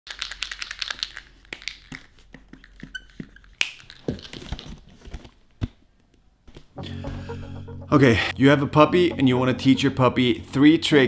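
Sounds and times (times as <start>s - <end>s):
object clicking and rattling: 0.1s - 4.2s.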